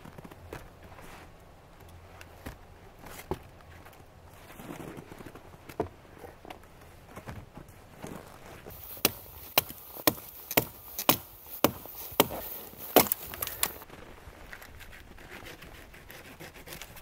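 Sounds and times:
axe chopping wood: 8.7 - 13.8.

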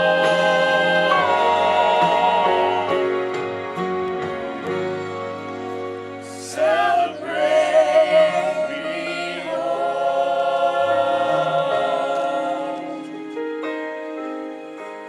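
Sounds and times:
group of voices singing: 0.0 - 3.7, 6.3 - 13.4
soft instrumental backing: 0.0 - 15.0.

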